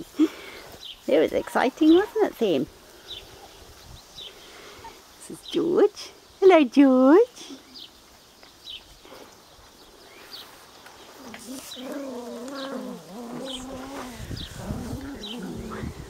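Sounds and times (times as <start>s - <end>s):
low rustling: 10.1s - 16.0s
puppy whining: 11.2s - 16.0s.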